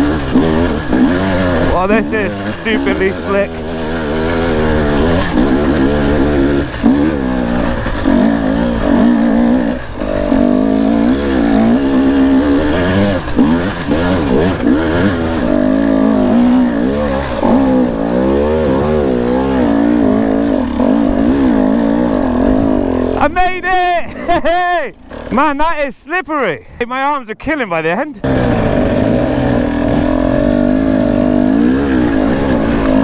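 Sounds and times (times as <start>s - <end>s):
dirt bike engine revving: 0.0s - 25.9s, 28.0s - 33.0s.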